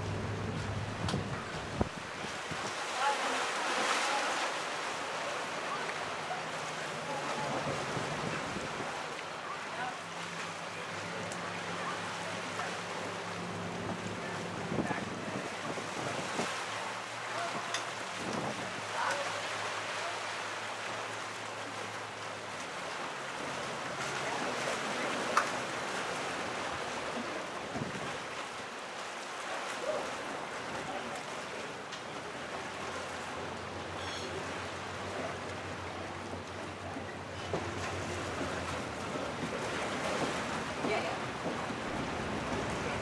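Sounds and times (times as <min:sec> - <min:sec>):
wind buffeting microphone: 0:00.0 - 0:02.8, 0:13.8 - 0:16.6, 0:17.5 - 0:18.9, 0:37.6 - 0:43.0
rushing choppy water: 0:00.0 - 0:43.0.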